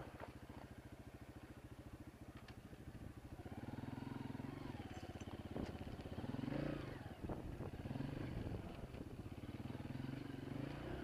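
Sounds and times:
dirt bike engine revving: 3.3s - 11.0s.

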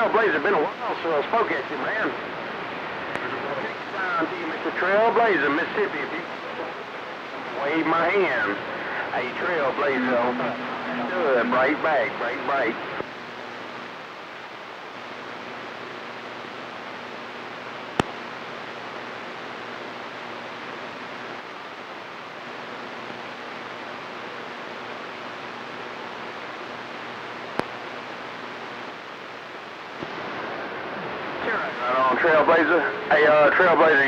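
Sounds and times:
radio static hiss: 0.0s - 34.0s
sharp static cracks: 7.9s - 21.8s, 25.4s - 32.8s.

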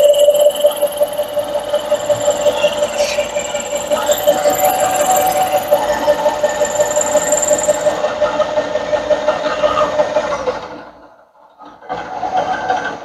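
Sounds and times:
milling machine cutting whine: 0.0s - 8.7s.

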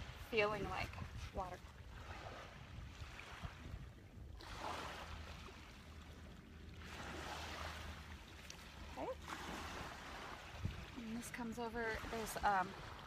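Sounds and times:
faint waves washing on beach: 4.4s - 13.0s.

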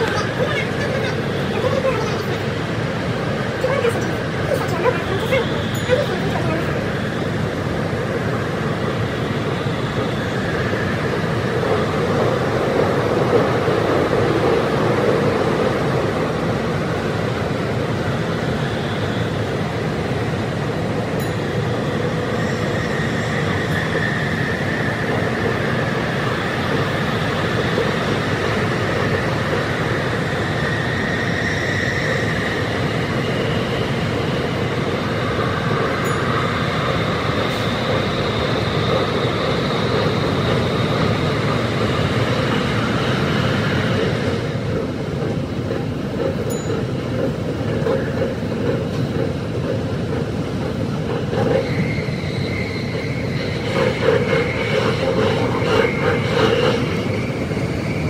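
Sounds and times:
electric train roar: 0.0s - 58.0s.

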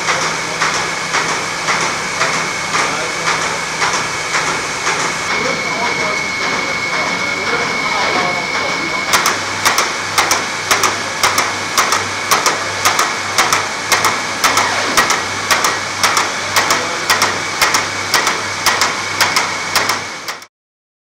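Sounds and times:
printing press hum: 0.0s - 20.5s
sharp mechanical clack: 9.1s - 20.5s.

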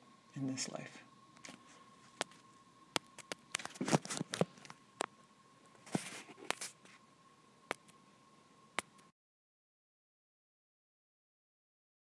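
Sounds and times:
faint high-pitched hum: 0.0s - 9.2s
soft rustle: 5.8s - 7.1s.

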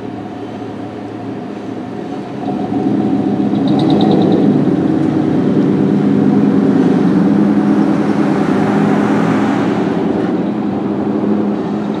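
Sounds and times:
car tyre noise passing: 0.0s - 12.0s
low engine hum: 0.0s - 12.0s.

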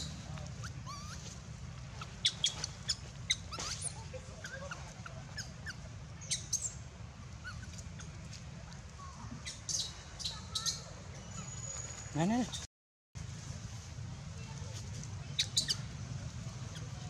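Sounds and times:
baby monkey squeaking and chirping: 0.0s - 6.8s, 7.4s - 8.2s, 9.4s - 12.1s, 15.3s - 16.0s, 16.6s - 17.0s.

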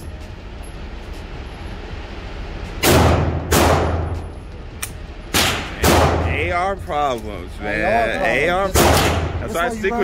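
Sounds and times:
gunshots echoing indoors: 2.8s - 4.2s, 5.3s - 6.3s, 8.8s - 9.4s.

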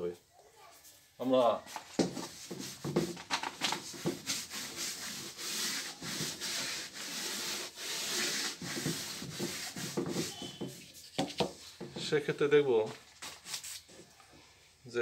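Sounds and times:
chalk wiped off blackboard: 1.7s - 11.8s.

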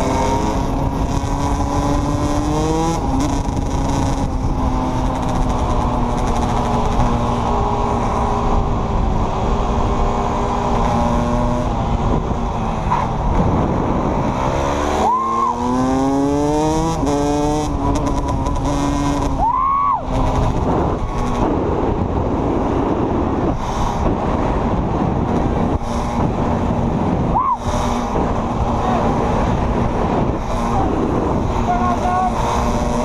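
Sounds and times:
quad engines revving: 0.0s - 33.0s
wind rushing: 0.0s - 33.0s.

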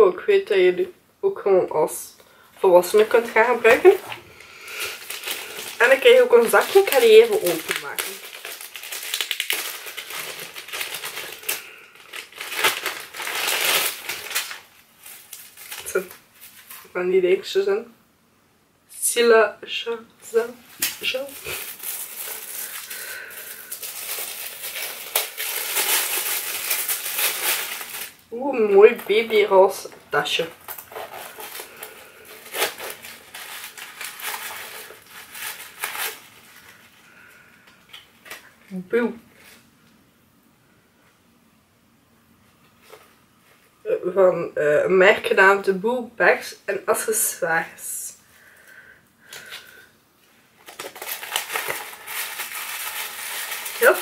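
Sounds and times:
plastic packet crinkling: 2.8s - 16.9s, 20.6s - 38.7s, 50.6s - 54.0s.

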